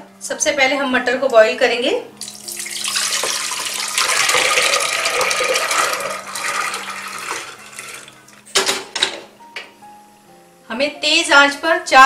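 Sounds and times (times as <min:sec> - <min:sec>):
water and peas pouring into pot: 0:02.2 - 0:08.3.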